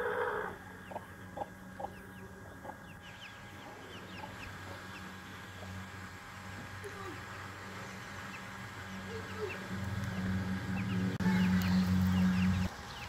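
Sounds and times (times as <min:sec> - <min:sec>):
hen clucking: 0:00.0 - 0:05.8
chicks peeping: 0:00.0 - 0:13.0.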